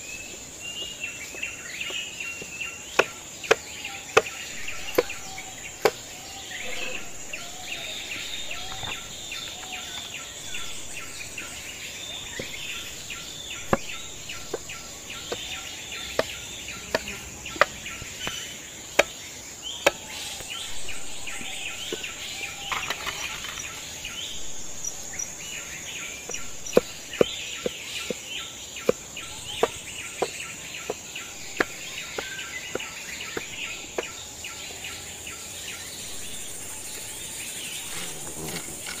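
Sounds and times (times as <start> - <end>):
birds calling: 0.0 - 39.0
high insect drone: 0.0 - 39.0
knife chopping on wooden board: 1.8 - 9.2, 12.3 - 19.2, 28.8 - 34.2.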